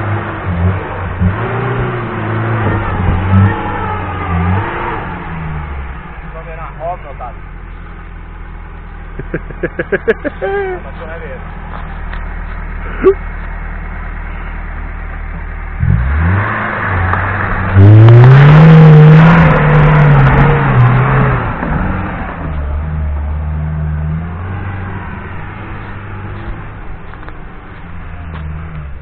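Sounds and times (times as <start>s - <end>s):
engine revving in mud: 0.0s - 6.1s, 15.7s - 27.0s.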